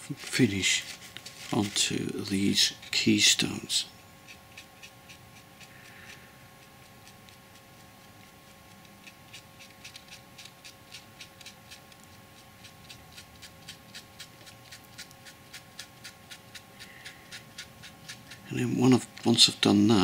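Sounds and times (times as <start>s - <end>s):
faint steady hum: 0.0s - 20.0s
paintbrush dabbing ticks: 4.2s - 20.0s.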